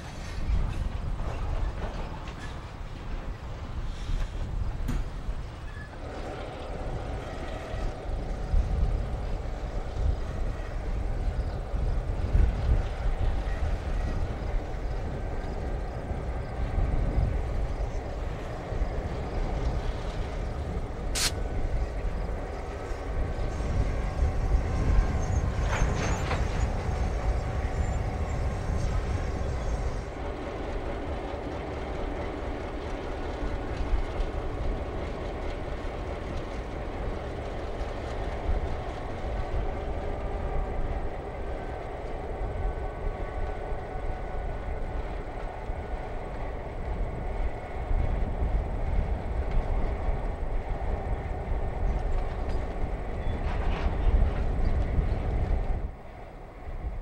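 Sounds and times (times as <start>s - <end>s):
diesel locomotive engine rumble: 0.0s - 57.0s
train cars clanking: 0.0s - 57.0s
sharp click: 21.2s - 21.4s.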